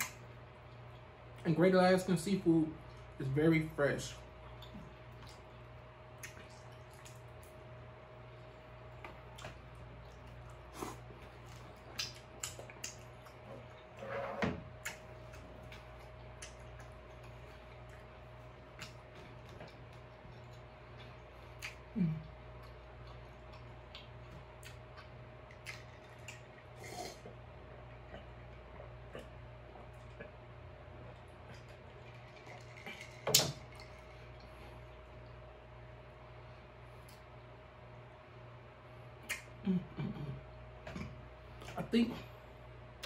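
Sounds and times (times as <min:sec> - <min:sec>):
low mm hums: 0:00.0 - 0:43.0
lip smacks and wet chewing: 0:04.4 - 0:07.8, 0:08.4 - 0:13.9, 0:14.8 - 0:35.4, 0:39.2 - 0:39.6.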